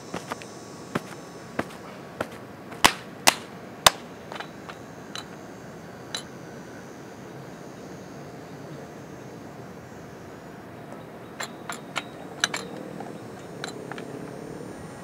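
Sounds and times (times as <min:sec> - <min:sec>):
sharp clicks and knocks: 0:01.0 - 0:05.4, 0:11.4 - 0:14.1.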